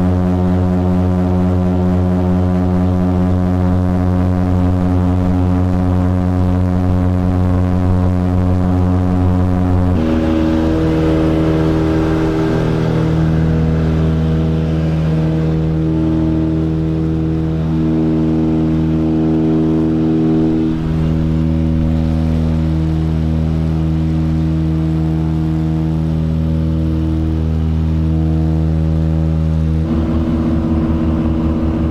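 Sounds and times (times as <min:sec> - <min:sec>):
propeller plane engines droning: 0:00.0 - 0:31.9.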